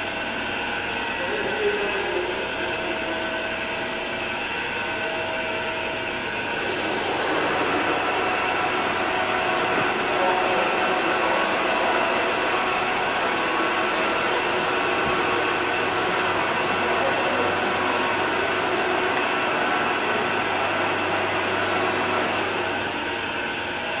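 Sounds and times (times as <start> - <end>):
bandsaw running: 6.4 - 22.9.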